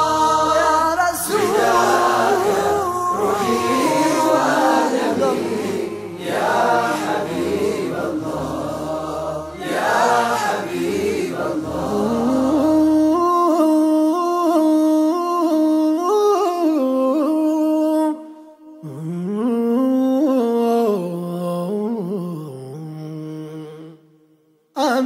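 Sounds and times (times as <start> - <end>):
men singing without instruments: 0.0 - 13.8.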